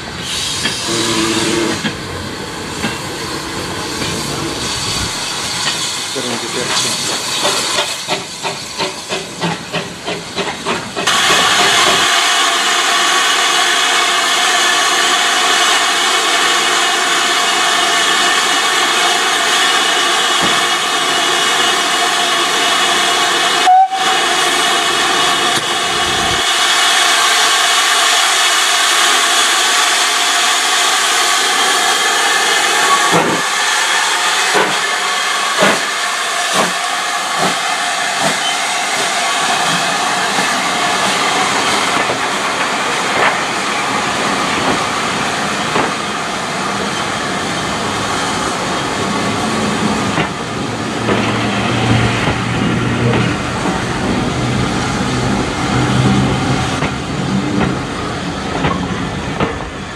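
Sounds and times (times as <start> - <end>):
train clanks: 0.0 - 12.3, 18.4 - 24.0, 32.6 - 33.5, 34.4 - 59.9
steam hissing: 0.0 - 59.9
steam locomotive exhaust beats: 2.7 - 59.9.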